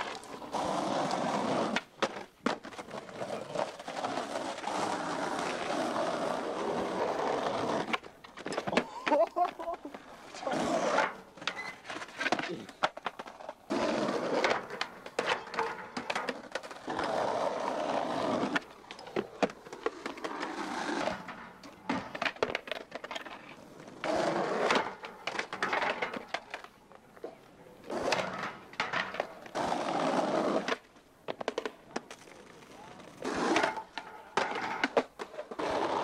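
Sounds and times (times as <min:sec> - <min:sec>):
skateboard clacking on ground: 0:00.0 - 0:36.0
skateboard wheels rolling on asphalt: 0:00.0 - 0:36.0.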